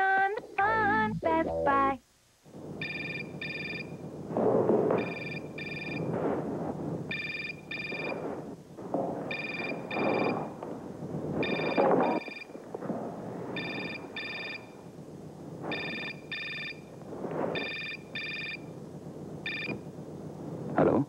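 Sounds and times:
soft noisy sounds: 0:00.0 - 0:21.0
telephone ringing: 0:02.8 - 0:04.0, 0:05.0 - 0:06.1, 0:07.1 - 0:08.2, 0:09.3 - 0:10.5, 0:11.4 - 0:12.6, 0:13.6 - 0:14.8, 0:15.7 - 0:16.9, 0:17.6 - 0:18.7, 0:19.4 - 0:19.8.

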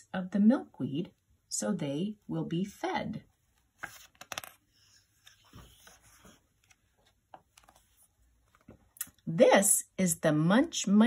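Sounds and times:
book page turning: 0:03.6 - 0:08.9.

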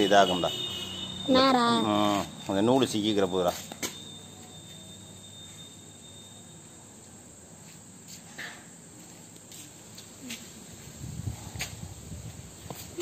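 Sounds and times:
steady insect hum: 0:00.0 - 0:13.0
puppy scuffing on concrete floor: 0:07.6 - 0:13.0.

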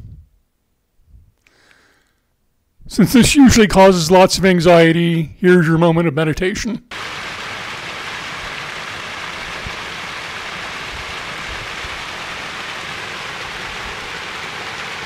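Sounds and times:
water rushing over rocks: 0:06.9 - 0:15.0.

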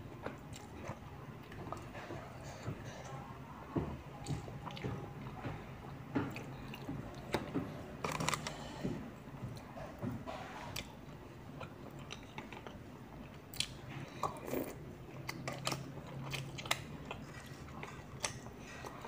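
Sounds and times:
child chewing and slurping: 0:13.6 - 0:19.0.

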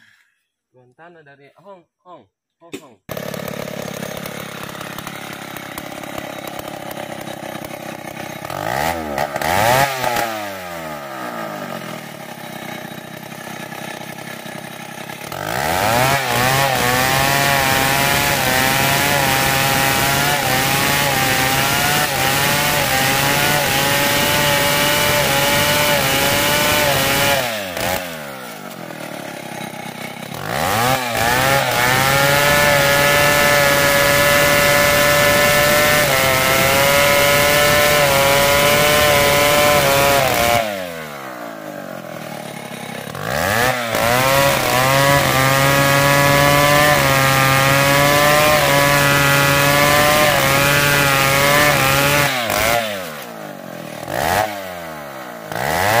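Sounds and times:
chainsaw cutting log: 0:02.7 - 0:56.0.

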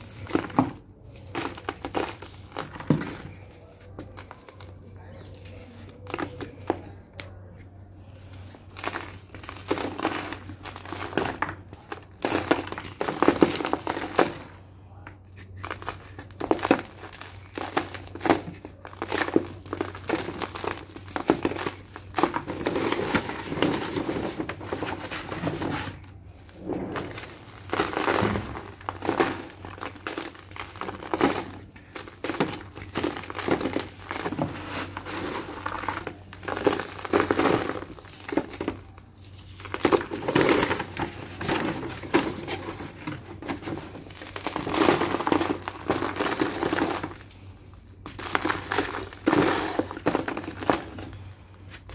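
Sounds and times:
dried cement crumbled by hand: 0:00.0 - 0:51.9
powder falling onto a sheet: 0:26.6 - 0:42.3.

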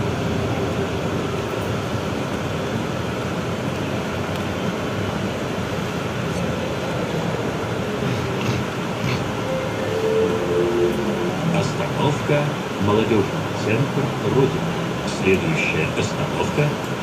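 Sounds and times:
trolleybus cabin running noise: 0:00.0 - 0:17.0.

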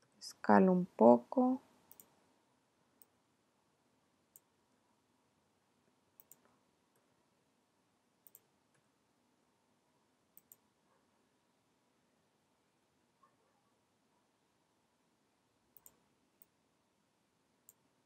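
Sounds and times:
computer mouse clicks: 0:01.9 - 0:02.2, 0:06.2 - 0:07.1, 0:08.2 - 0:08.9, 0:10.4 - 0:10.7, 0:15.7 - 0:16.6, 0:17.6 - 0:17.8.

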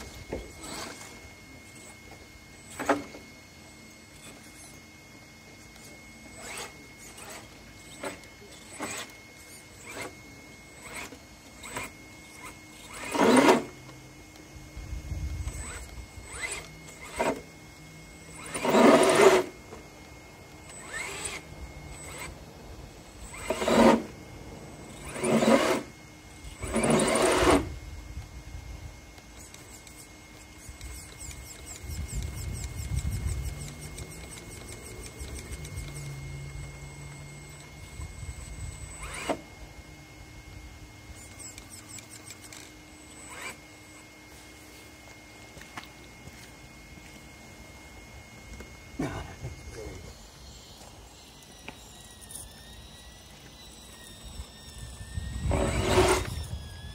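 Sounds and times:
electric motor whine bursts: 0:00.0 - 0:56.9.

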